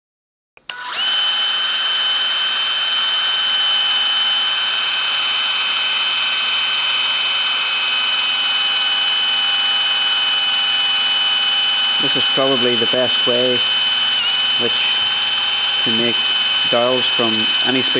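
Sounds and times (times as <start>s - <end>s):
cordless drill whine: 0.6s - 17.9s.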